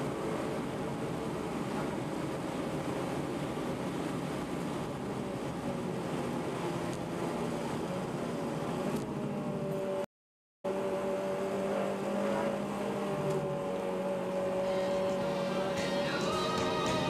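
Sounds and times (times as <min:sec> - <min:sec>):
road and wind noise: 0:00.0 - 0:17.0.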